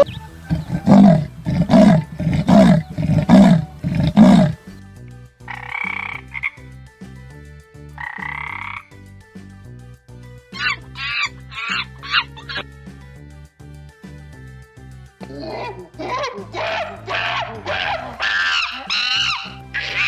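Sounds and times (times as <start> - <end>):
frog croaking: 0.0 - 4.6, 5.5 - 6.6, 8.0 - 8.9, 10.6 - 12.6
leopard sawing call: 0.0 - 4.7, 10.5 - 12.6, 16.5 - 20.0
soft background music: 0.0 - 20.0.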